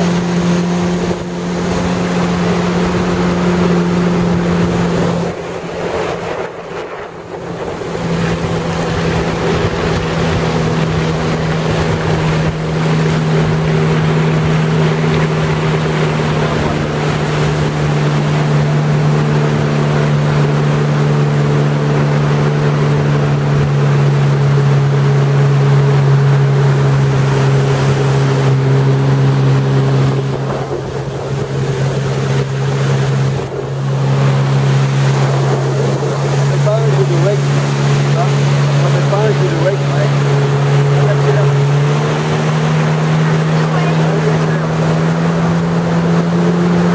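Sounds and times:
jet ski engine running: 0.0 - 46.9
water rushing: 0.0 - 46.9
wind buffeting microphone: 0.0 - 46.9.

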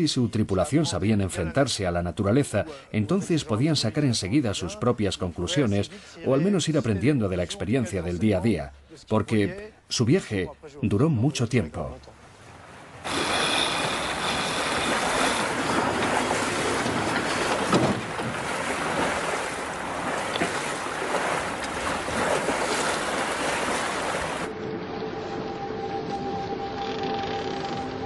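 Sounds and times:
sea noise: 12.1 - 28.0
music with held notes: 24.5 - 28.0.

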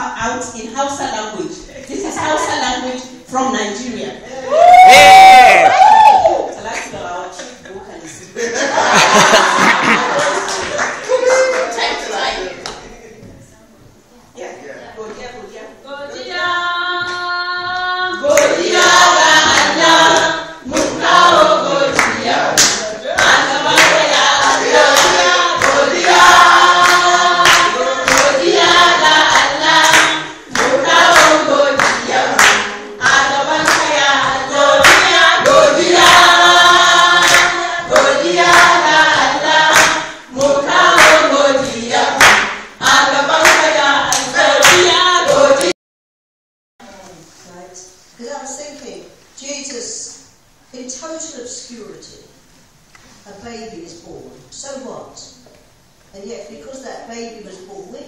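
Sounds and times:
group of voices singing: 16.0 - 45.8
hand-clapping on the beat: 18.3 - 45.8.

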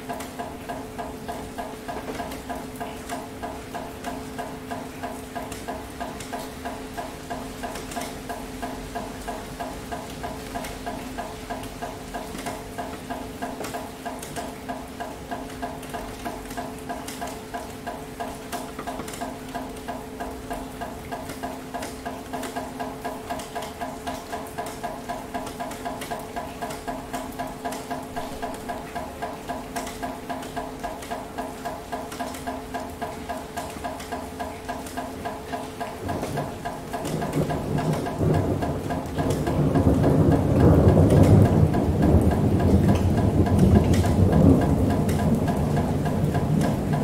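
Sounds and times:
rain falling: 0.0 - 47.0.

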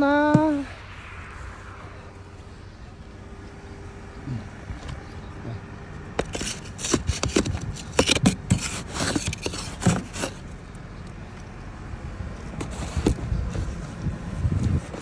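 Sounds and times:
ice scraper scraping car: 6.1 - 10.5, 12.6 - 13.8.

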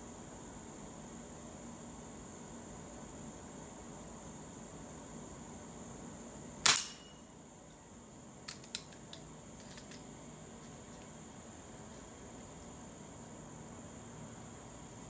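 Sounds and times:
high insect buzz: 0.0 - 15.0
air pistol shot: 6.6 - 7.2.

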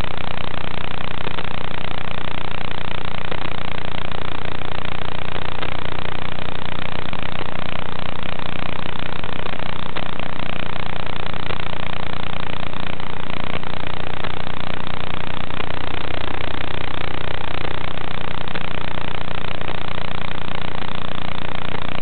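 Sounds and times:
loud static hiss: 0.0 - 22.0
low buzzing hum: 0.0 - 22.0.

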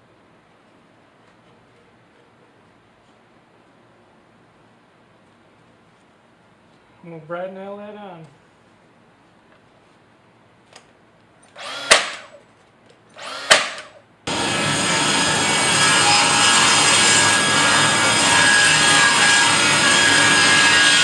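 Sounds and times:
nail gun firing: 11.5 - 12.4, 13.2 - 14.0
table saw ripping a board: 11.6 - 12.4, 13.2 - 21.0.

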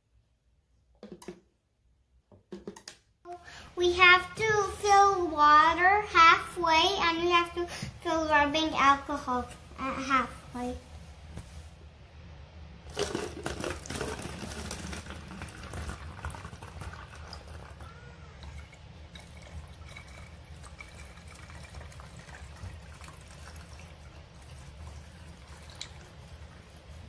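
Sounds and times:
liquid trickling into a bottle: 12.9 - 17.8, 18.4 - 26.5
water splashing into a funnel: 12.9 - 17.8, 18.4 - 26.4.

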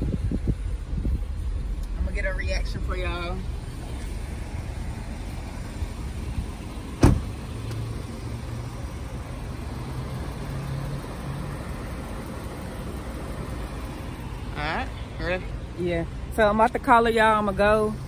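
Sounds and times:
car door slamming: 6.8 - 7.9.

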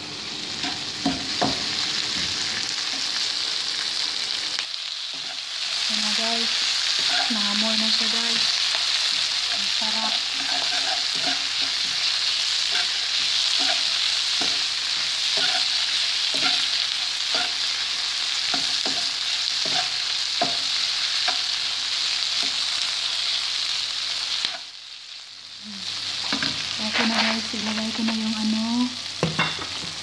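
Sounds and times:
vegetables sizzling in oil: 0.0 - 30.0
spatula scraping a wok: 6.4 - 22.6, 26.3 - 28.0.

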